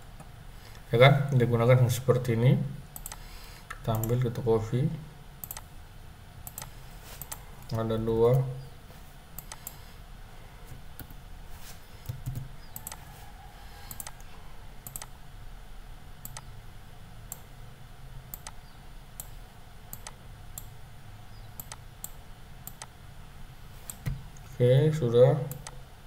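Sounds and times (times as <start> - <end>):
faint low hum: 0.0 - 26.0
mouse and keyboard clicks: 12.0 - 13.1, 13.9 - 15.1.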